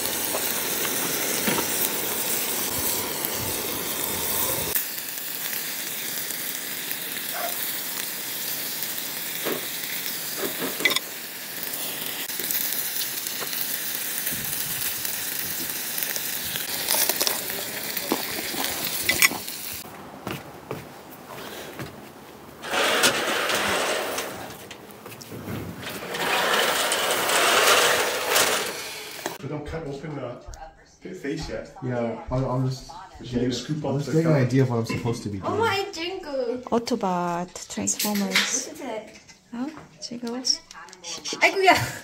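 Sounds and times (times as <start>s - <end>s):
meat sizzling on a grill pan: 0.0s - 19.9s.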